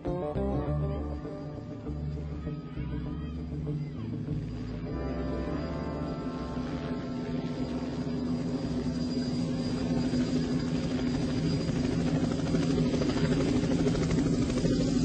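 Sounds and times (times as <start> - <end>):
helicopter approaching: 0.9 - 15.0.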